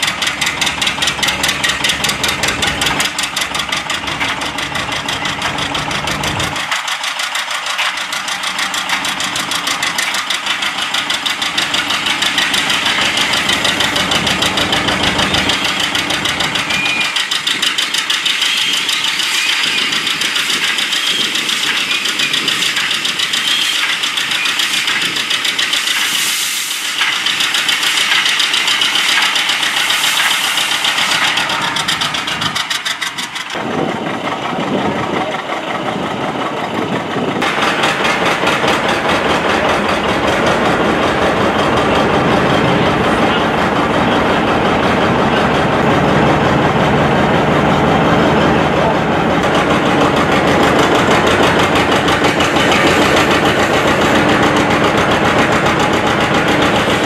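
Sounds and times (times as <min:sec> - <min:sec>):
drive belt slipping: 0:00.0 - 0:57.0
engine cranking without firing: 0:00.0 - 0:57.0
tractor engine running: 0:00.0 - 0:57.0.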